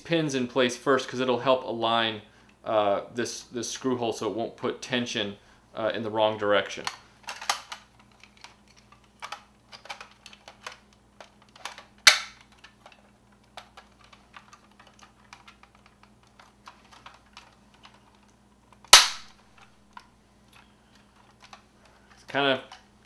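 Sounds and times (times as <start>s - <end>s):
hard plastic parts clicking: 6.7s - 22.9s
plastic snapping into place: 9.2s - 12.8s.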